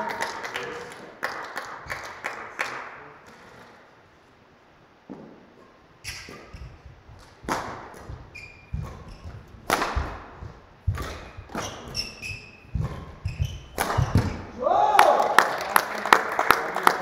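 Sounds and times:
rackets hitting shuttlecock: 5.1 - 14.6
shoe squeak: 5.6 - 14.5
footstep thuds: 6.3 - 14.5.

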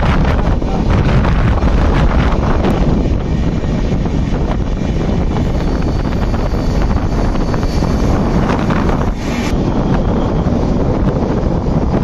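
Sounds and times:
passing train: 0.0 - 12.0
train wheels rumbling on track: 0.0 - 12.0
wind buffeting microphone: 0.0 - 12.0.

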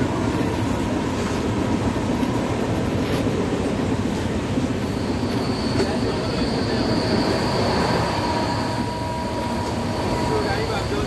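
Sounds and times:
train rumble: 0.0 - 11.0
high wheel squeal: 4.2 - 11.0
low wheel squeal: 4.6 - 11.0.

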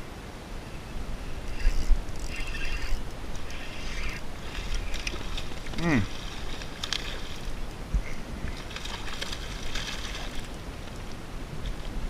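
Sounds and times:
fish splashing in water: 3.6 - 7.6, 8.5 - 10.6.

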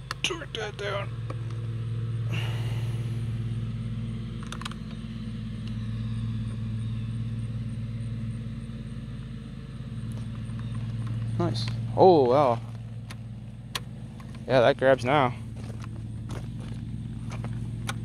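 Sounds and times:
motorcycle engine idling: 0.0 - 18.0
clutch lever clicks: 4.4 - 5.0, 13.0 - 14.5, 17.8 - 18.0.

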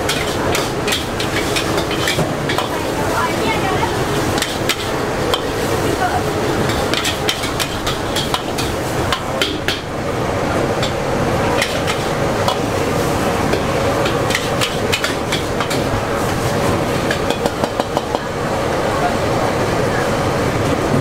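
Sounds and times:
metal ladle scraping a wok: 0.0 - 3.0, 4.2 - 5.9, 6.6 - 9.7, 10.8 - 17.4
frying hiss: 0.0 - 20.4.

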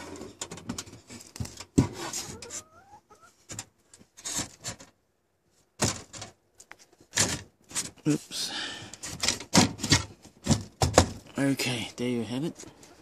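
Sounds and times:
wood rubbing and scraping on wood: 0.0 - 5.0.

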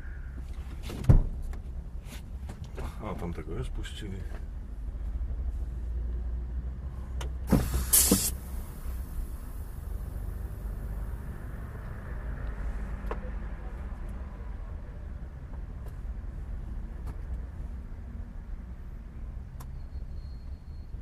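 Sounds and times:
truck diesel engine rumble: 2.7 - 15.2
short loud hiss: 7.5 - 9.0.

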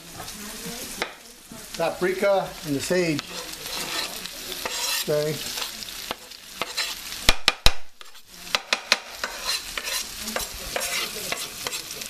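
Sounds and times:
food sizzling in a frying pan: 0.0 - 12.0
spatula scraping a pan: 1.8 - 12.0
utensil knocking on pan: 6.1 - 7.9, 8.5 - 11.8.

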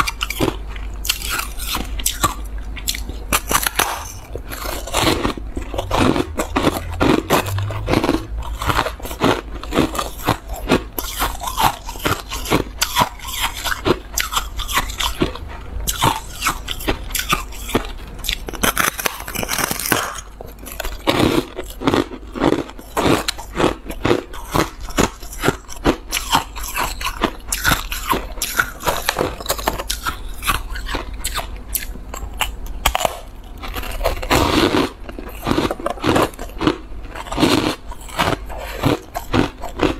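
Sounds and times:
shaved ice crunching: 15.9 - 22.0.

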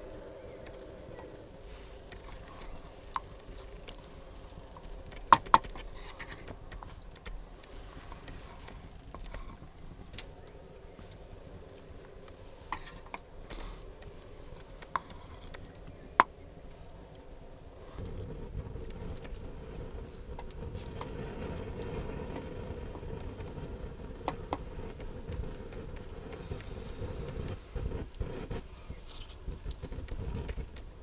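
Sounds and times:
wooden spoon stirring mashed potatoes: 1.6 - 17.0.

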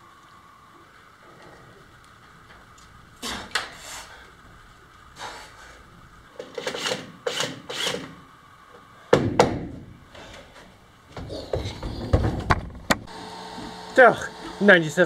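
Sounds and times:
sharp wooden knocks: 9.1 - 9.8
dull thumps and knocks: 9.1 - 9.9, 11.1 - 13.1.

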